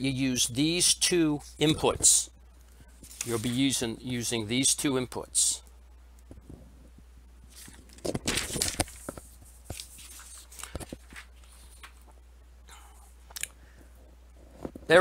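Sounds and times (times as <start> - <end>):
low steady hum: 0.0 - 15.0
paper sheet rustling: 3.0 - 3.8, 7.5 - 12.1.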